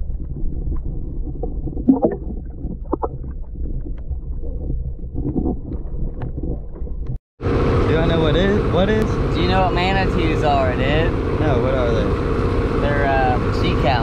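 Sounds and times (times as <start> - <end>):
muffled underwater rumble: 0.0 - 7.2.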